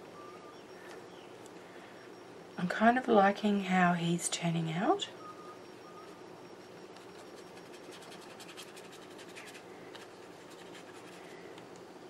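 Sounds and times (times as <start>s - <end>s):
paintbrush scratching on paper: 7.1s - 11.2s.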